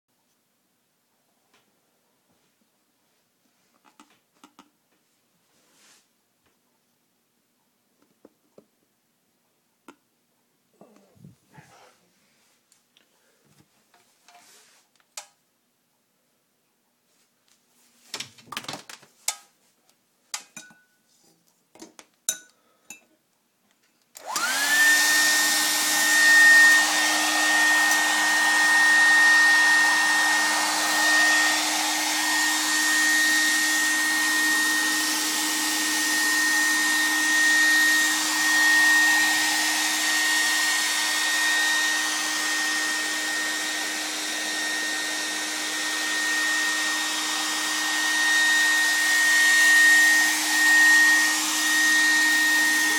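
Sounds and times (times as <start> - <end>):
hair dryer running: 24.2 - 52.9.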